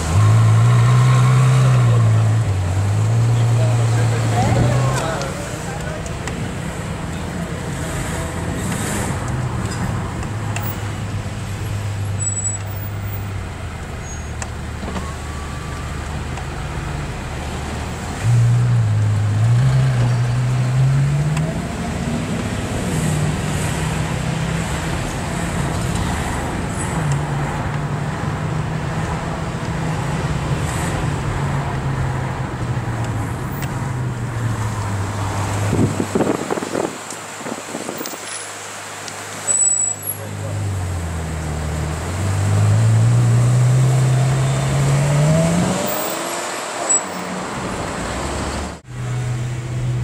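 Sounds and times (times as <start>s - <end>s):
car engine accelerating: 40.2s - 50.0s.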